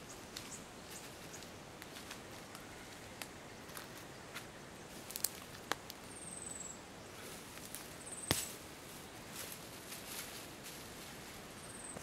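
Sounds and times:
footsteps over dry bush litter: 0.1 - 6.2, 7.2 - 12.0
twigs cracking: 1.4 - 6.1, 7.5 - 8.6.

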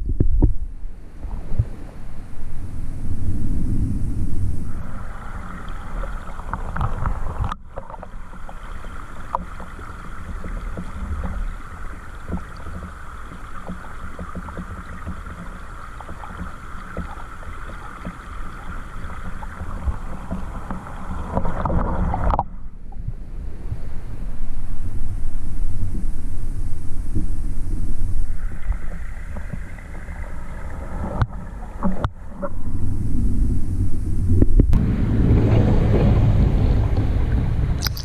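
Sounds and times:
stream heard underwater: 0.0 - 38.0
faint ticks: 6.5 - 23.2.

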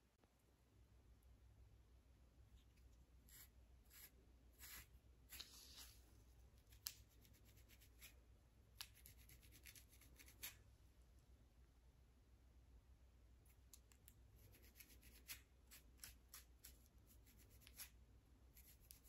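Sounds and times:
metal comb scratching scalp: 3.3 - 6.0, 8.8 - 10.6, 14.4 - 17.9.

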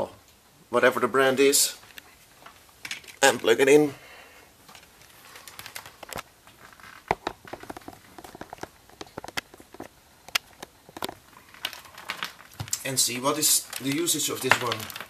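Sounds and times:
plastic handling clicks and rustles: 1.8 - 3.5, 4.6 - 15.0.

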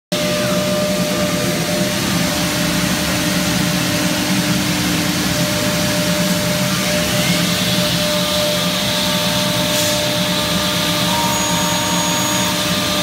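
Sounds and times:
router machine whining: 0.2 - 13.0.

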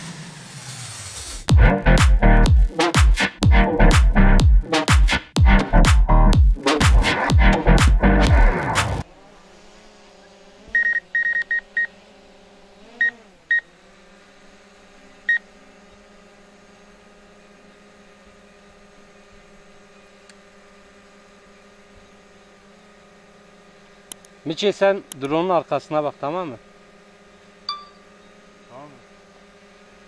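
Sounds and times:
high-pitched electronic beeps: 27.7 - 28.1.

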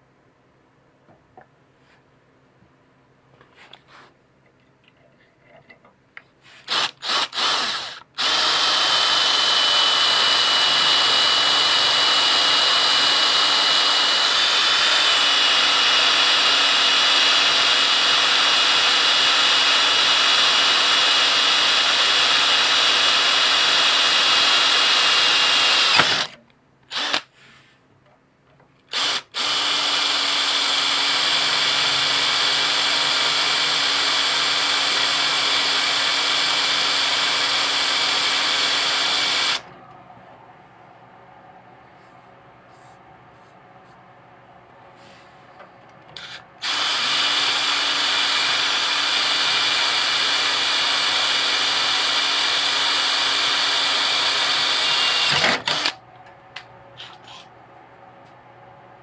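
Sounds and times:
power drill whining through steel: 6.6 - 27.3, 28.9 - 39.7, 46.1 - 56.0.

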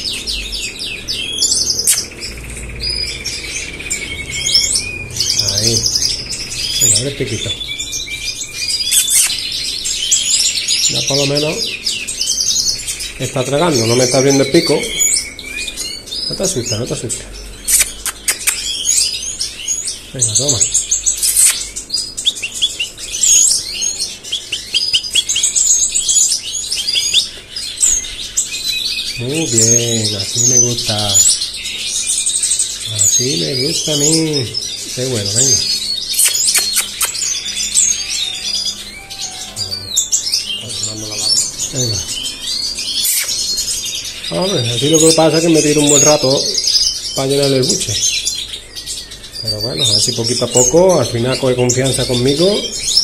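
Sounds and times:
songbirds chirping and singing: 0.0 - 53.0
sharp click: 17.7 - 18.7, 21.2 - 21.6, 36.2 - 37.3.

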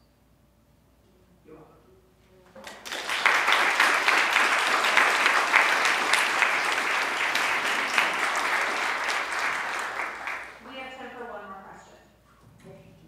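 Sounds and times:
audience applauding: 2.6 - 10.6.

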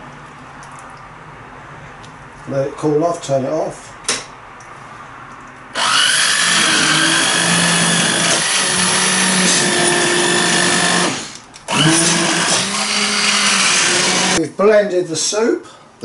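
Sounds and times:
stick blender motor whine: 5.8 - 14.4.

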